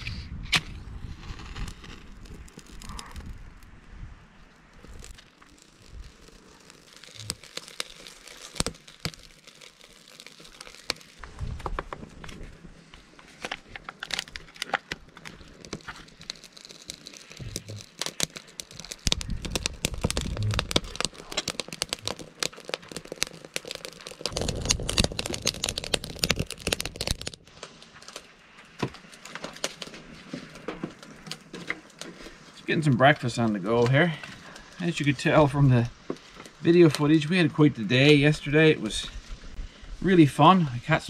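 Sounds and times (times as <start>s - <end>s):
low rumbling: 0.0s - 7.5s, 17.4s - 22.2s
wood fire crackling: 0.0s - 41.0s
paper packet crinkling: 1.0s - 3.6s, 4.6s - 37.2s.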